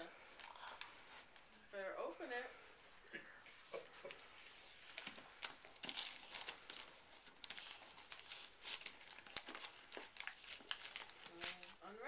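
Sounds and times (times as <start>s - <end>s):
wrapping paper crinkling and tearing: 4.4s - 12.0s.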